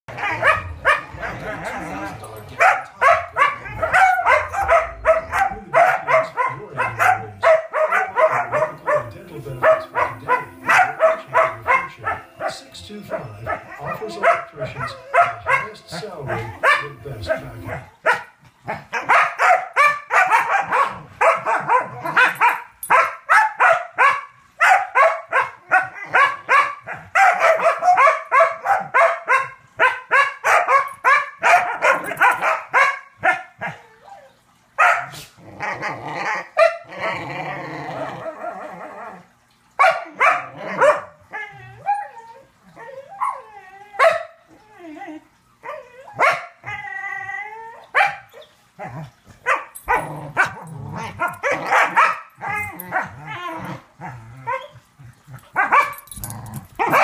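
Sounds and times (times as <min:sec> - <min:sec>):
dog yipping: 0:02.6 - 0:09.0, 0:09.6 - 0:12.6, 0:13.5 - 0:15.7, 0:18.9 - 0:35.2, 0:39.8 - 0:41.1, 0:41.8 - 0:44.4, 0:45.6 - 0:47.0, 0:47.9 - 0:48.6, 0:51.2 - 0:53.7, 0:55.6 - 0:57.0
small dog barking: 0:02.6 - 0:12.6, 0:13.8 - 0:15.7, 0:19.0 - 0:33.5, 0:34.8 - 0:35.2, 0:39.8 - 0:41.1, 0:44.0 - 0:44.3, 0:46.2 - 0:46.5, 0:48.0 - 0:48.2, 0:49.4 - 0:50.6, 0:51.2 - 0:53.1, 0:55.6 - 0:56.0, 0:56.8 - 0:57.0.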